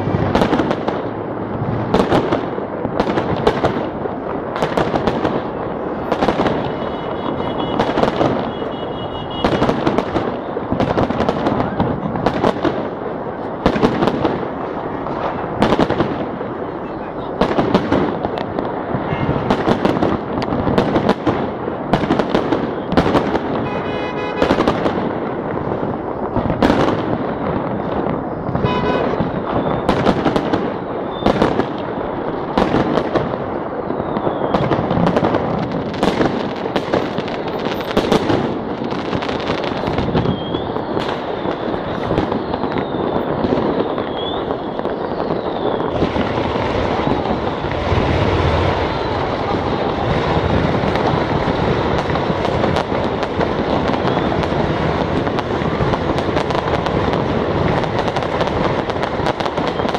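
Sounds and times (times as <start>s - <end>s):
firework shells bursting: 0.0s - 16.6s, 17.4s - 59.9s
continuous din: 0.0s - 31.4s, 34.5s - 58.0s
firework whistles: 5.4s - 11.9s, 22.5s - 24.9s, 26.1s - 31.7s, 33.5s - 35.4s, 36.0s - 55.4s, 59.3s - 59.9s.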